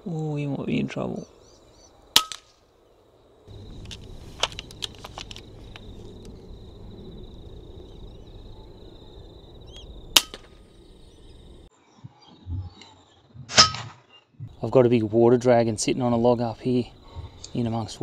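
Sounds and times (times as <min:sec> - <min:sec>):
outdoor background noise: 0:00.0 - 0:18.0
air rifle shot: 0:10.2 - 0:10.6, 0:13.5 - 0:14.0.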